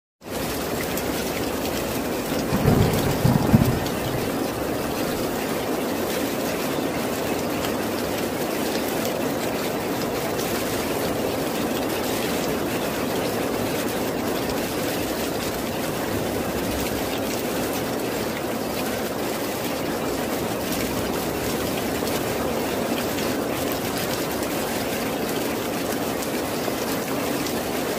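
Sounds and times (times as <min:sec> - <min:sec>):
steady rain falling: 0:00.2 - 0:27.9
low rumble of thunder: 0:02.0 - 0:05.9.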